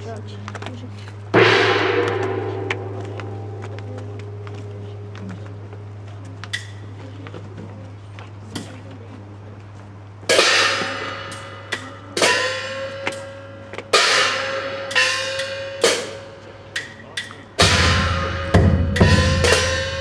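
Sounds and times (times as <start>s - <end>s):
gong and cymbal crashes: 1.3s - 4.8s, 10.3s - 16.7s, 17.6s - 20.0s.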